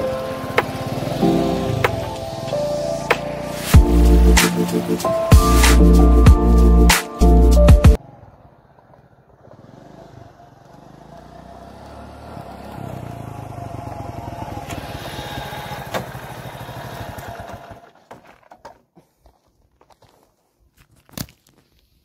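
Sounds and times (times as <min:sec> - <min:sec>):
small motorcycle engine running: 0:00.0 - 0:02.1, 0:08.0 - 0:18.4.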